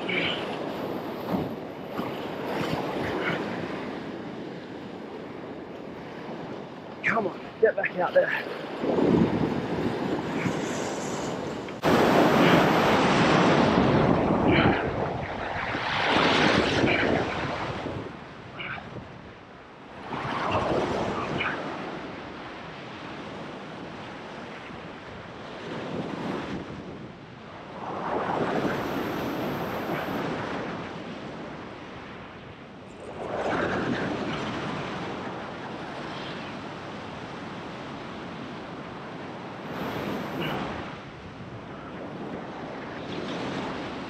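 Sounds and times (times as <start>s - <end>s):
wind on microphone: 0.0s - 7.6s, 8.4s - 44.0s
ocean waves washing over rocks: 0.0s - 19.3s.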